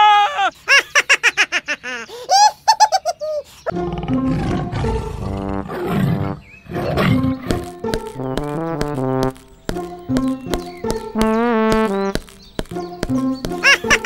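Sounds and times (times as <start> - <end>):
animated leopard roar: 3.7 - 7.5
background music: 3.7 - 14.0
high-pitched cartoon chattering: 13.4 - 14.0.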